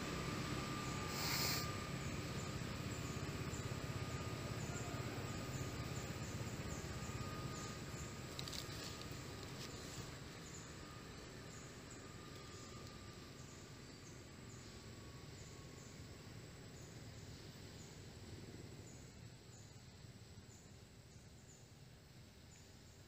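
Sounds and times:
short hissy burst: 0:01.1 - 0:01.8.

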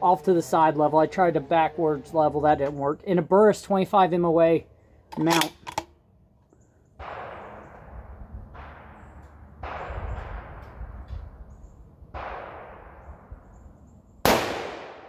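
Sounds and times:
distant gunshots echoing: 0:06.8 - 0:15.0.

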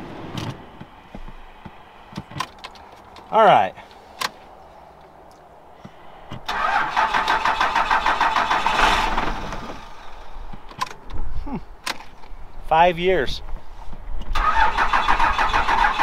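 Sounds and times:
diesel engine cranking on starter: 0:06.4 - 0:10.3, 0:14.3 - 0:16.0.

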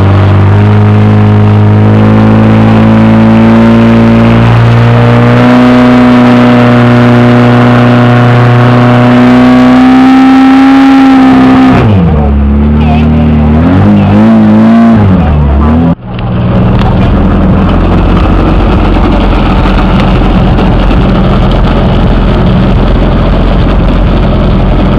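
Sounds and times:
pump engine running flat out: 0:16.4 - 0:24.9.

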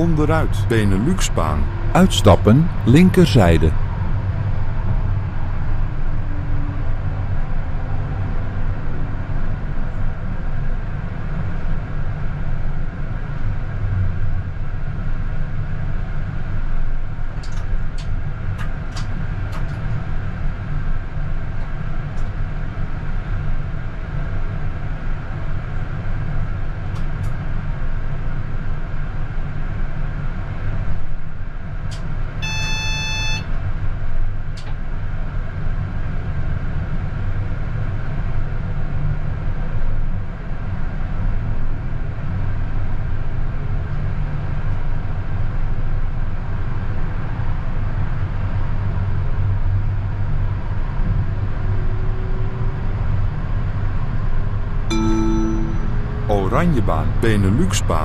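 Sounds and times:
electronic beep: 0:54.9 - 0:57.2.

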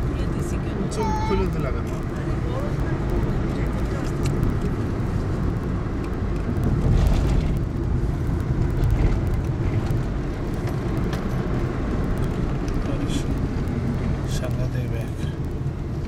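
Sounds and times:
car engine and road rumble: 0:00.0 - 0:16.0.

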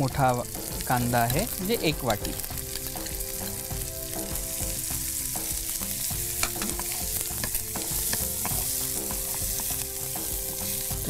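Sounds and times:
onion sizzling in a frying pan: 0:00.0 - 0:11.0
spatula scraping a pan: 0:06.3 - 0:11.0.

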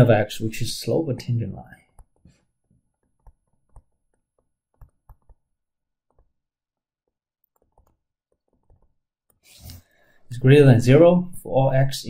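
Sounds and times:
stylus tapping on tablet: 0:01.9 - 0:09.4.

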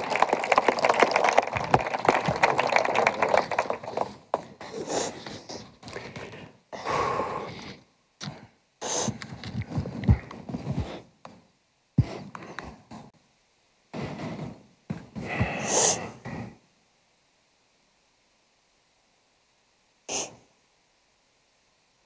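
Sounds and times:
person sniffling and breathing shakily: 0:04.6 - 0:09.3, 0:15.2 - 0:16.6.

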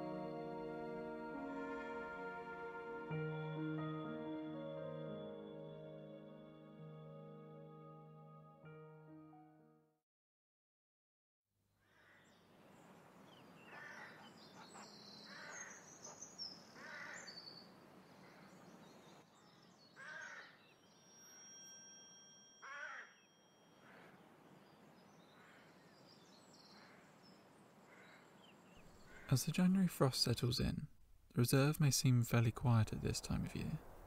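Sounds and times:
small birds chirping: 0:12.0 - 0:21.9, 0:22.6 - 0:29.6
rasping bird calls: 0:13.6 - 0:17.3, 0:20.0 - 0:20.6, 0:22.6 - 0:23.2, 0:23.8 - 0:24.3, 0:27.9 - 0:29.4.

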